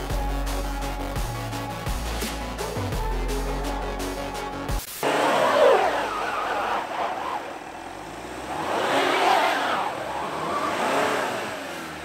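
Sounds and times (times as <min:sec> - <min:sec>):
car engine revving: 0:04.9 - 0:12.0
wheels spinning in snow: 0:05.0 - 0:12.0.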